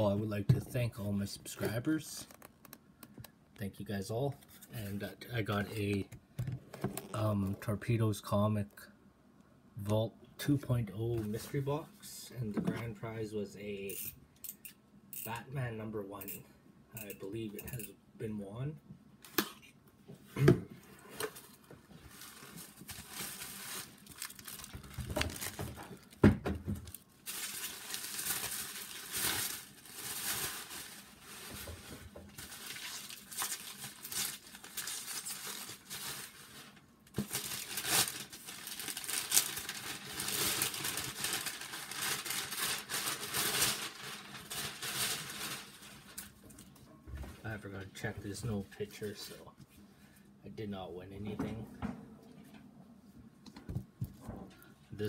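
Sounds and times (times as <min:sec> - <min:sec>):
packaging crinkling and rustling: 0:21.1 - 0:46.8.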